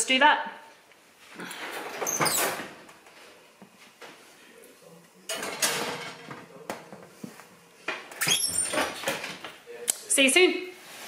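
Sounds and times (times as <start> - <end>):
ceramic dish clattering on wire rack: 5.3 - 6.3.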